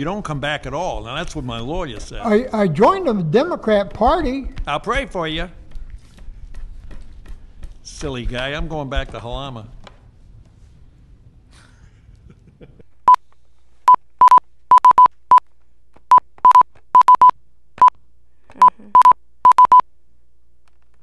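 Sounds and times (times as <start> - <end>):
electronic keypad beeps: 13.9 - 15.1, 16.1 - 17.9, 18.6 - 19.8.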